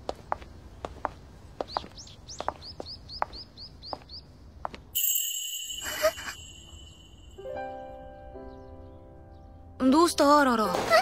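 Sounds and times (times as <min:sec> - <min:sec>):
footsteps walking: 0:00.0 - 0:05.0
small bird chirping: 0:00.0 - 0:09.6
loud high ringing with hiss: 0:05.0 - 0:07.6.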